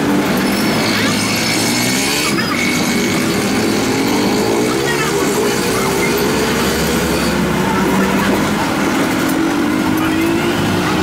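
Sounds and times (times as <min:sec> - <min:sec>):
engine humming: 0:00.0 - 0:11.0.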